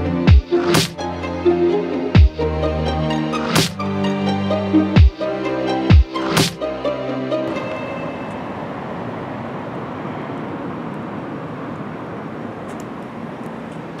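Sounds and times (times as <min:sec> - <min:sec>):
electronic music: 0:00.0 - 0:09.0
outdoor hiss and rumble: 0:06.4 - 0:14.0.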